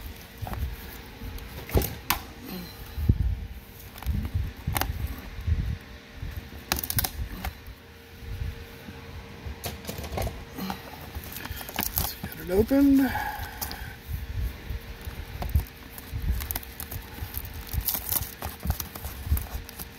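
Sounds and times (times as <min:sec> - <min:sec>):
faint steady hum: 0:00.0 - 0:19.9
plastic wrap crinkling: 0:10.6 - 0:13.8, 0:14.8 - 0:19.9.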